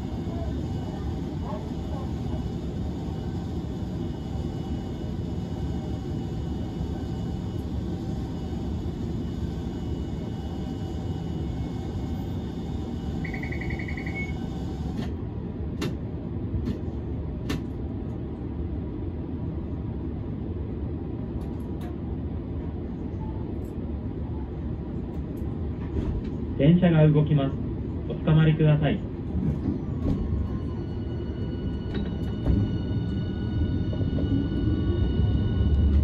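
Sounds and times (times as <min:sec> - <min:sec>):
tram rumbling: 0:00.0 - 0:36.0
rapid high beeping: 0:13.2 - 0:14.5.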